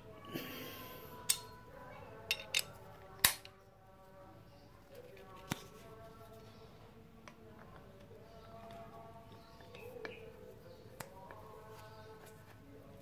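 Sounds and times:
metallic clinks of hand tools: 2.3s - 2.7s.

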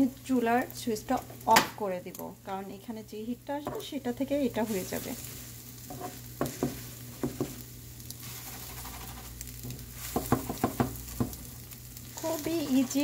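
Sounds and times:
egg sizzling in oil: 0.0s - 13.0s
spatula tapping frying pan: 5.9s - 7.6s, 8.8s - 11.4s.

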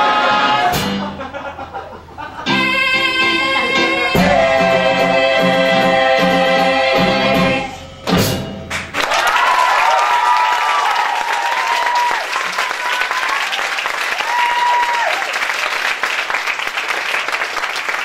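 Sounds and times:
rhythmic accompaniment: 2.4s - 9.0s
ensemble singing held chords: 2.5s - 8.1s
audience applause and whoops: 8.9s - 18.0s.

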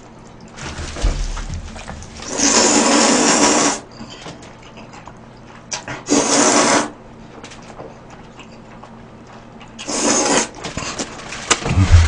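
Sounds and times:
person slurping noodles: 2.2s - 3.8s, 9.8s - 10.6s.

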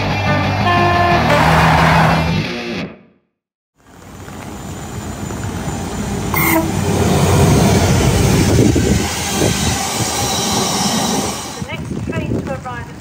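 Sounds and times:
train horn toot: 0.2s - 1.9s, 6.4s - 6.8s
freight train rumbling and clattering: 3.9s - 13.0s.

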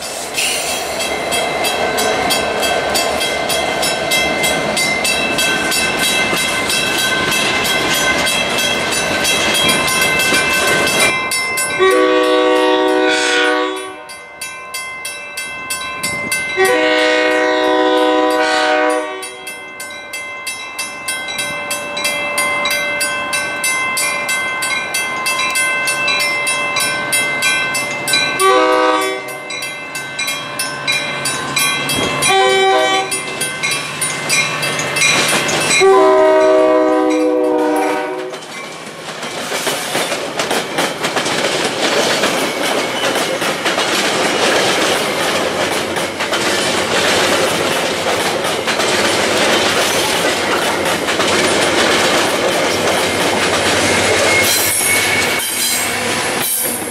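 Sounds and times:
freight train wheels rumbling: 0.0s - 56.9s
train air horn blasts: 11.8s - 14.1s, 16.6s - 19.4s, 28.4s - 29.4s, 32.3s - 33.2s, 35.8s - 38.3s.

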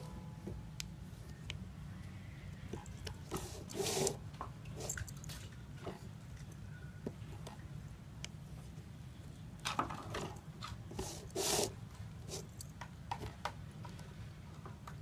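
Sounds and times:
cord rustling through paper holes: 3.3s - 6.1s, 10.6s - 12.6s.

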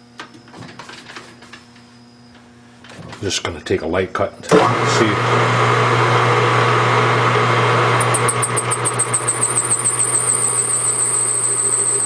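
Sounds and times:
high-pitched pulsing cutter squeal: 8.0s - 12.0s
machine tool motor running: 8.0s - 12.0s.

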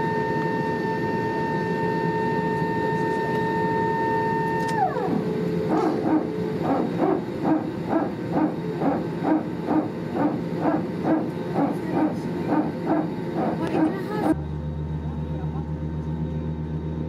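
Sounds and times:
whine gliding down: 0.0s - 11.3s
hydraulic pump barking: 5.0s - 14.3s.

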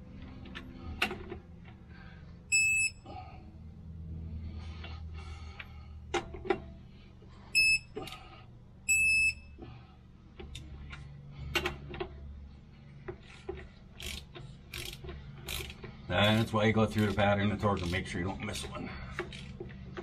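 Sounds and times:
torque wrench beeping: 2.5s - 3.0s, 7.6s - 8.1s, 8.9s - 9.6s
metallic clicks of wrench on bolts: 13.2s - 20.0s.

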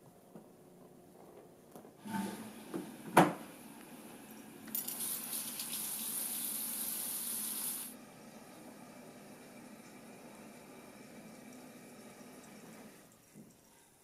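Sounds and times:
water running from a tap: 4.7s - 7.9s.

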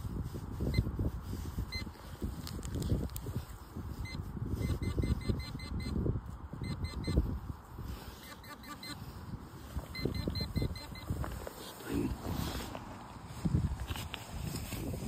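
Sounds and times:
low rustling noise: 0.0s - 4.7s, 9.0s - 15.0s
metal detector beeps: 0.7s - 0.9s, 1.7s - 2.0s, 4.0s - 6.0s, 6.6s - 7.4s, 8.1s - 9.2s, 9.8s - 11.2s.

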